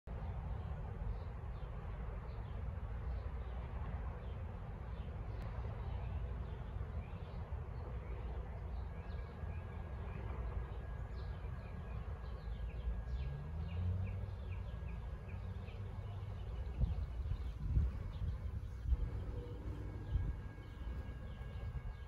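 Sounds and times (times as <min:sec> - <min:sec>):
low rumble of street traffic: 0:00.1 - 0:22.0
small birds chirping: 0:10.7 - 0:22.0
vehicle engine pulling away: 0:12.4 - 0:20.9.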